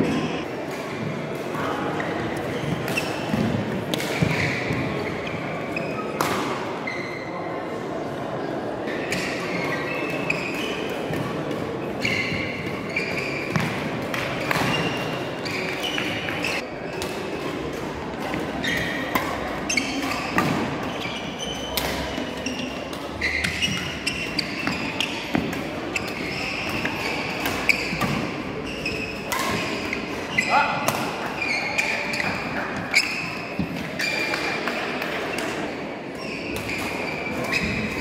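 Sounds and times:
murmur of voices: 0.0s - 38.0s
shoes squeaking on court floor: 2.0s - 7.4s, 8.9s - 17.6s, 18.2s - 38.0s
racket hitting shuttlecock: 2.4s - 5.2s, 12.3s - 16.3s, 16.9s - 35.6s.

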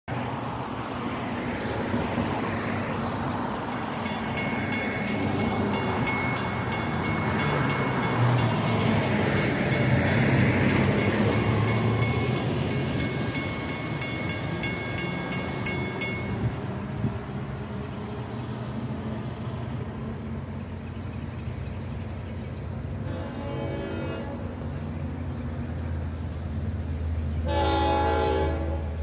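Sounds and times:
crossing bell ringing: 3.6s - 16.8s.

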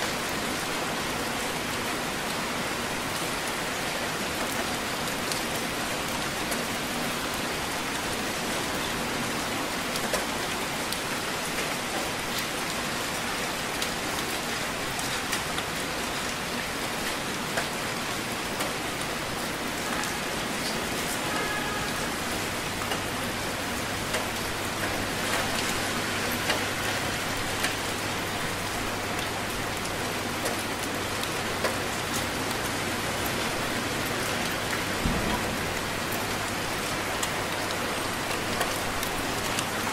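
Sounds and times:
heavy rain falling: 0.0s - 39.9s.

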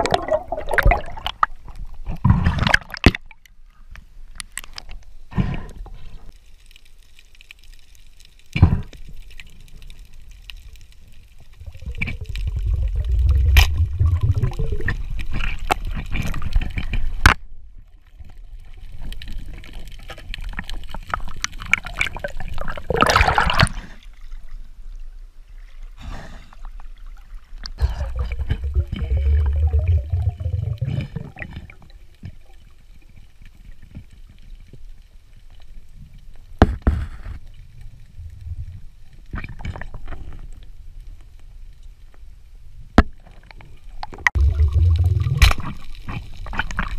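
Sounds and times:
underwater breath bubbling: 11.6s - 15.6s, 27.7s - 31.8s, 44.4s - 45.8s.

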